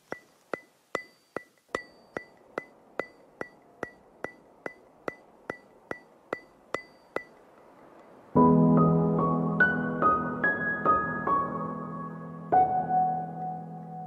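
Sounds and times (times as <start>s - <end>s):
sharp ringing ticks: 0.0s - 8.2s.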